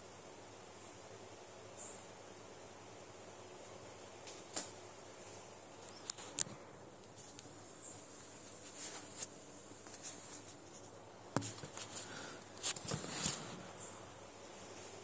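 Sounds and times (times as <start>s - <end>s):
cluster of ticks: 5.8s - 14.0s.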